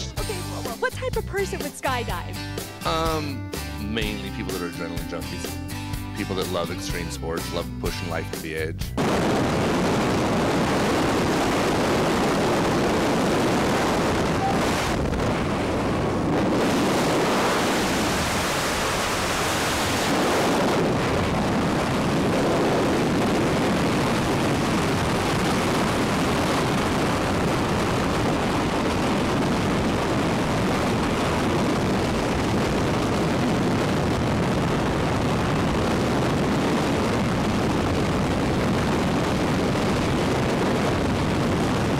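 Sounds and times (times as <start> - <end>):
loud rush of freefall wind: 9.0 - 41.9.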